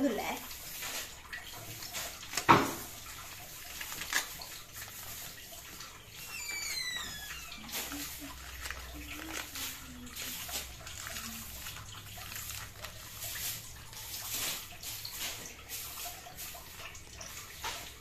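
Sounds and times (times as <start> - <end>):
packet handling: 2.2 - 5.4, 6.0 - 14.3
high squeak falling in pitch: 6.2 - 7.7.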